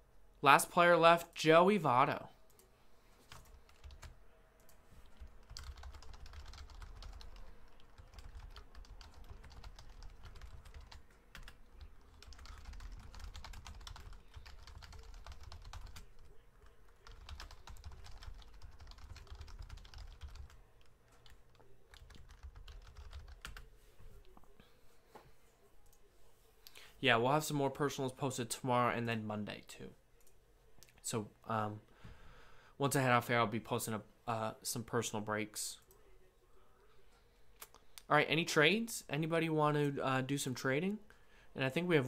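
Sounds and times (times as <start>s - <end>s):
typing on a keyboard: 3.3s - 4.2s, 5.2s - 23.7s.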